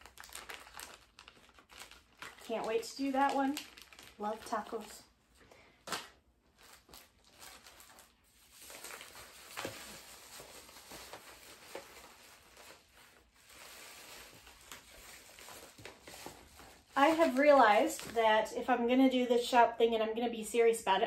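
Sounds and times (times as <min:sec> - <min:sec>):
plastic packaging crinkling: 0:00.0 - 0:18.3.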